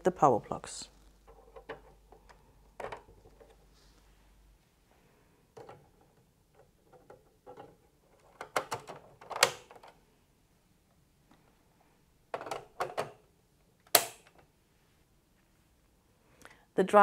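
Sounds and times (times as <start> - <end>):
soft handling noises: 0.3 - 8.4.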